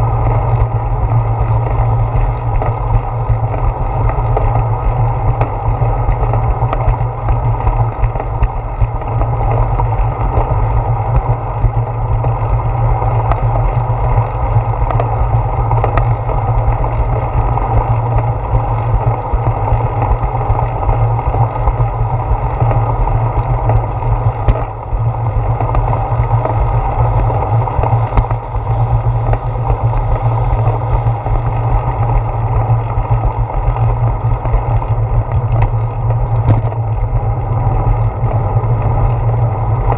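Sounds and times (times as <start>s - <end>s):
bicycle tyres rumbling on concrete: 0.0s - 39.9s
wind noise on microphone: 0.0s - 39.9s.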